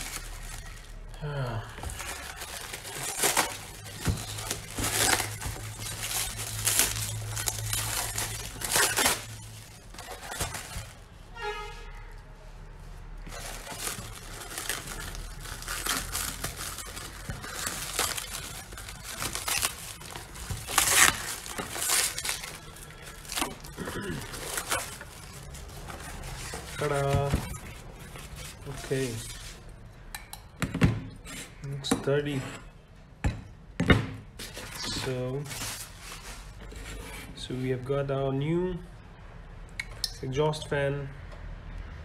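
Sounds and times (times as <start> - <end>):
plastic wrap crinkling: 0.0 - 11.5, 12.2 - 29.8, 34.4 - 37.0.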